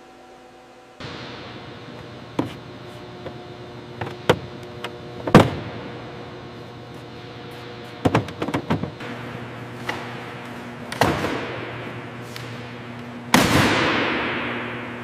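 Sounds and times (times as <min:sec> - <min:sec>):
steady hum: 0:00.0 - 0:15.0
loud impact: 0:13.3 - 0:15.0.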